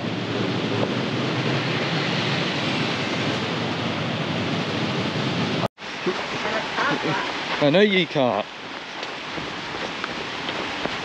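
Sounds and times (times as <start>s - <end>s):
rain falling steadily: 4.6s - 11.0s.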